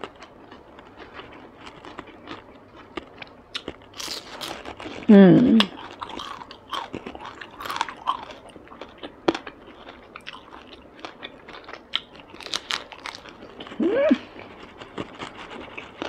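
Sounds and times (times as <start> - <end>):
person chewing crunchy food: 0.0 - 16.0
person humming: 5.1 - 5.7, 13.8 - 14.3.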